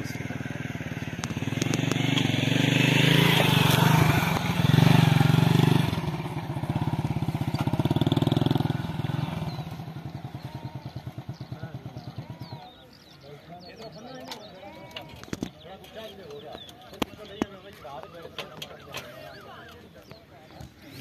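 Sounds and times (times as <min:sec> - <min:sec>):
small engine chugging: 0:00.0 - 0:21.0.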